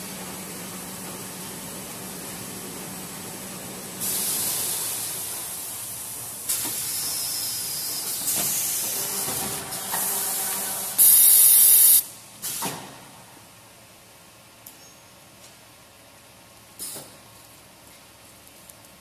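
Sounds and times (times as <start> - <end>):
compressed air hissing: 4.0 - 9.1, 9.7 - 12.6.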